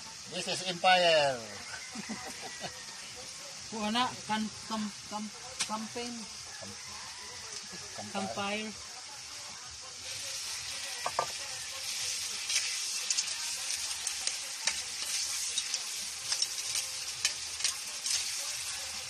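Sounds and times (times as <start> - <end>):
shrimp sizzling in frying pan: 0.0 - 19.0.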